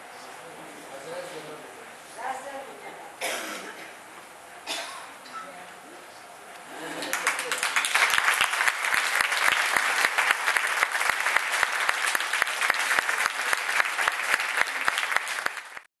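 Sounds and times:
audience applauding: 6.8 - 15.9.

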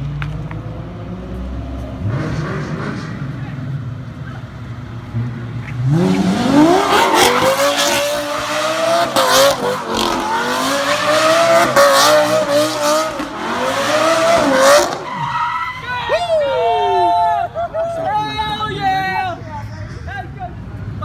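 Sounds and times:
sports car engine revving: 0.2 - 15.1
tyres squealing: 13.9 - 16.2.

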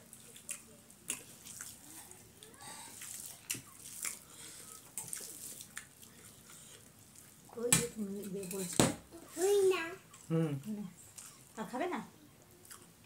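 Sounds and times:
chewing and lip smacks: 3.0 - 7.4, 11.0 - 11.6, 12.6 - 13.0.

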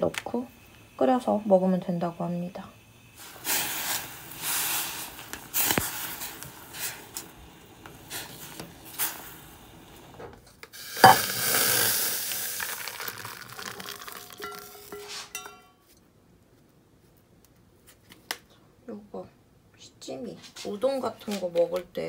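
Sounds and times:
broth pouring into bowl: 10.8 - 15.5.

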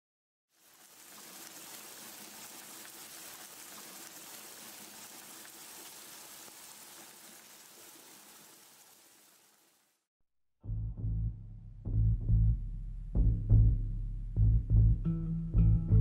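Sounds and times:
rushing water-like hiss: 0.5 - 10.1.

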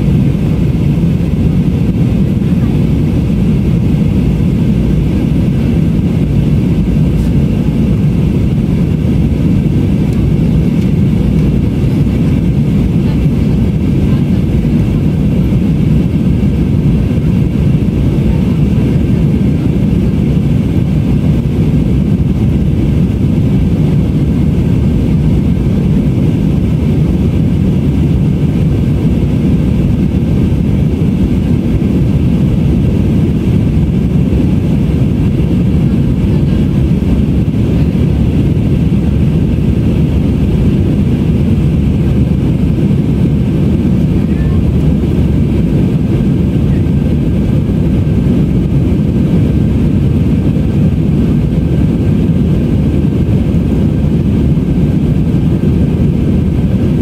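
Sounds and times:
airplane cabin drone: 0.0 - 57.0.

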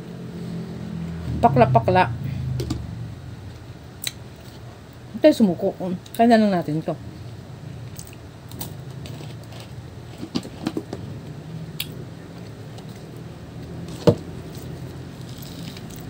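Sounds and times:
steady low hum: 0.0 - 16.0
fruit segments clicking and crackling: 7.9 - 10.7.

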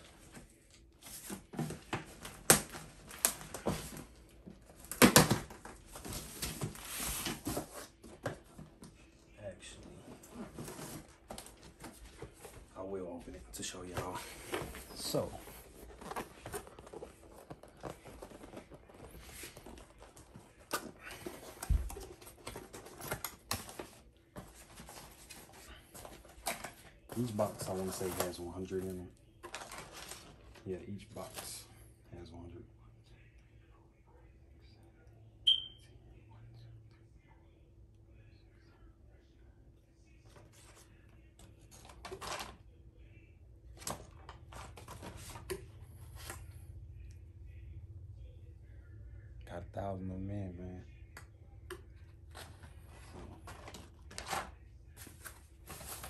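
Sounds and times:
cardboard rustling: 13.8 - 30.6, 52.3 - 56.0
packages clicking and rattling: 13.9 - 30.7, 41.6 - 42.6, 43.7 - 45.6, 52.3 - 56.0.

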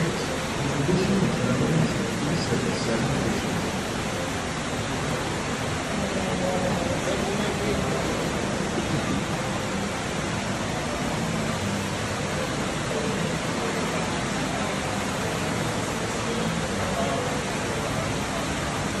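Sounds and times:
rushing water: 0.0 - 19.0.

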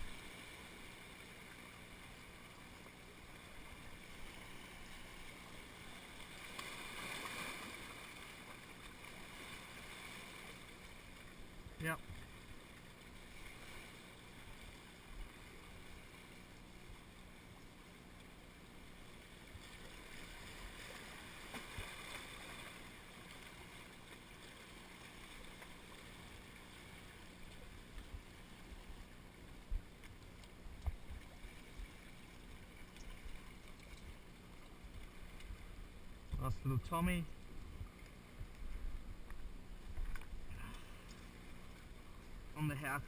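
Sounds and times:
small waves washing around rocks: 0.0 - 16.4, 19.0 - 28.9.

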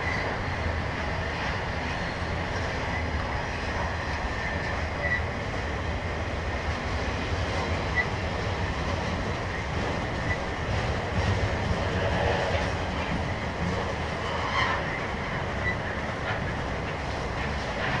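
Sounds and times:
freight train rumbling: 0.0 - 18.0
wheels clacking over rail joints: 0.0 - 18.0
high wheel squeaks: 4.6 - 5.4, 10.0 - 10.6.

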